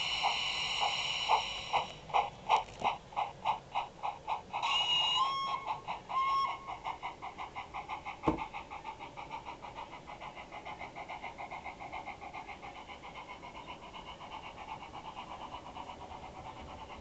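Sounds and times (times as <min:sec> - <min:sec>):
steam locomotive exhaust chuffs: 0:00.0 - 0:17.0
locomotive whistle: 0:04.6 - 0:06.7.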